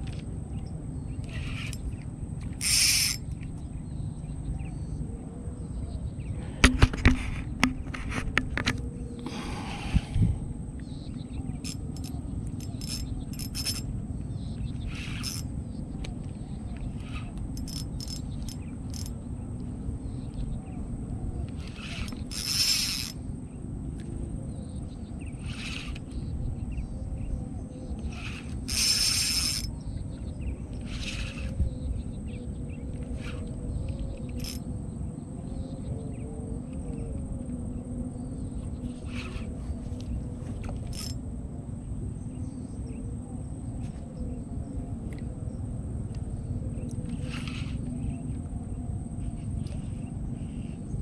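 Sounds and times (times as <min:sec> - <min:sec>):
faint drone: 0:00.0 - 0:51.0
spinning reel whirring: 0:01.2 - 0:03.4, 0:11.6 - 0:13.9, 0:14.8 - 0:15.5, 0:16.9 - 0:19.2, 0:21.6 - 0:23.2, 0:25.4 - 0:26.2, 0:28.1 - 0:29.7, 0:30.7 - 0:31.6, 0:33.1 - 0:33.6, 0:34.3 - 0:34.7, 0:39.1 - 0:39.6, 0:40.7 - 0:41.2, 0:47.1 - 0:47.9.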